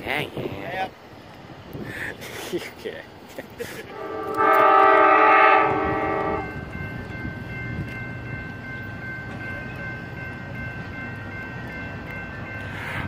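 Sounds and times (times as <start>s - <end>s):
train air horn chord: 3.9s - 6.5s
crossing warning bell ringing: 3.9s - 13.0s.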